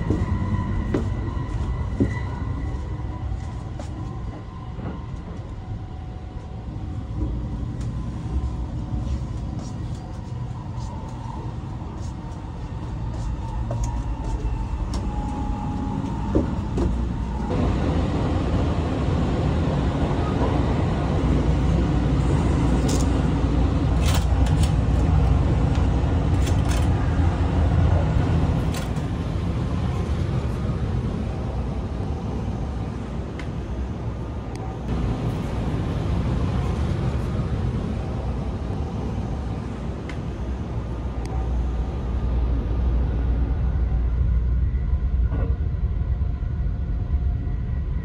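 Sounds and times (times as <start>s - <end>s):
train carriage rumble: 0.0s - 48.0s.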